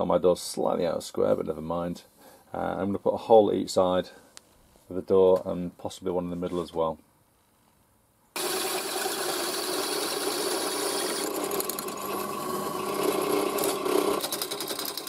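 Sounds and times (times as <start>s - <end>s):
drill hole saw grinding metal: 8.4s - 15.0s.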